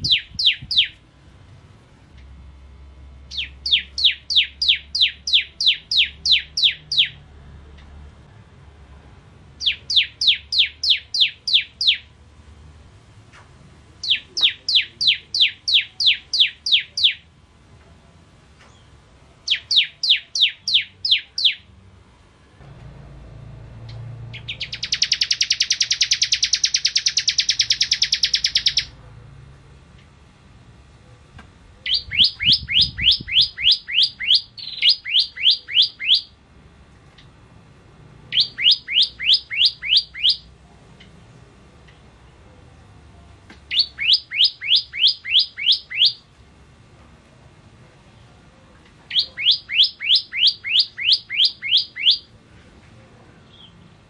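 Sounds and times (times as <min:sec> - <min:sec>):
bird singing falling notes: 0:00.0 - 0:01.0, 0:23.8 - 0:28.9, 0:31.8 - 0:36.3, 0:38.3 - 0:40.4, 0:43.6 - 0:46.2, 0:49.1 - 0:52.2
fast buzzing bird trill: 0:00.0 - 0:01.0, 0:03.3 - 0:07.2, 0:24.3 - 0:28.9, 0:31.9 - 0:36.3, 0:38.3 - 0:40.4, 0:43.7 - 0:46.2, 0:49.1 - 0:52.2.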